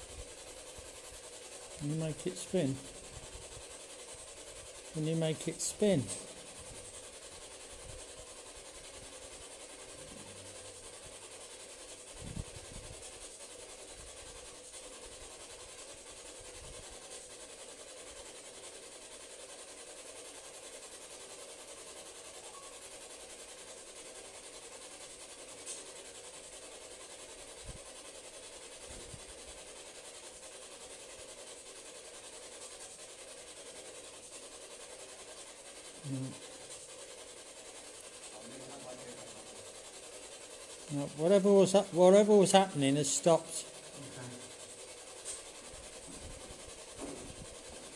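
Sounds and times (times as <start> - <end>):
microphone hiss: 0.0 - 17.1, 34.3 - 47.9.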